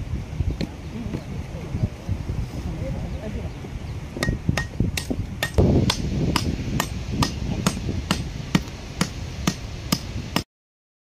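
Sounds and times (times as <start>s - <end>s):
hammer striking: 4.2s - 10.2s.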